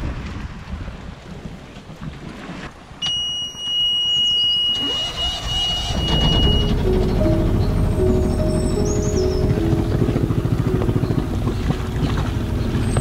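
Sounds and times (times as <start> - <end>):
water rushing past boat: 0.0 - 13.0
wind: 0.0 - 13.0
high-pitched electronic alarm tone: 3.0 - 10.6.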